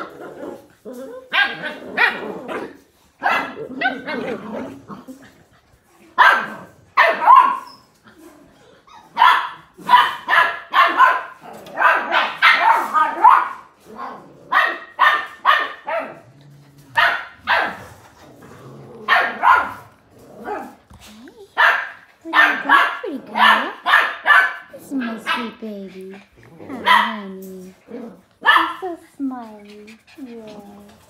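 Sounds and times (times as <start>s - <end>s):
puppies barking and yipping: 0.0s - 13.8s, 14.5s - 18.2s, 19.0s - 20.9s, 21.6s - 31.0s.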